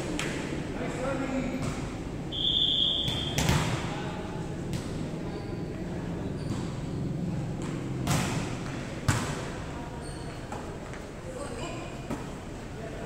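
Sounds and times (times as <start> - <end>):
volleyball being hit: 8.0 - 9.5.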